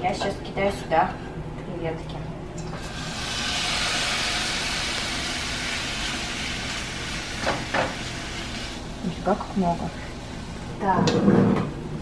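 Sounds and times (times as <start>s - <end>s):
shrimp sizzling in a pan: 2.8s - 10.6s.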